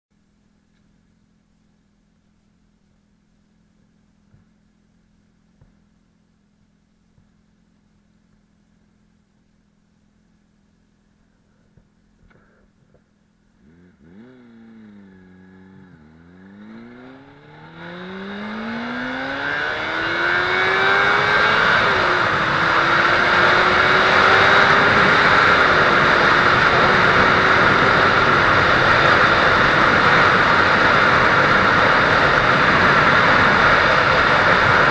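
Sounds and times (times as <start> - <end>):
motorcycle engine accelerating: 11.2 - 34.9.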